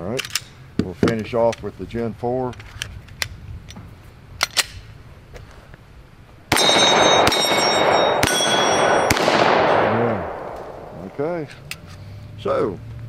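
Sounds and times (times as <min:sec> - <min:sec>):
pistol shots: 0:06.5 - 0:11.2
steel targets ringing: 0:06.5 - 0:11.2.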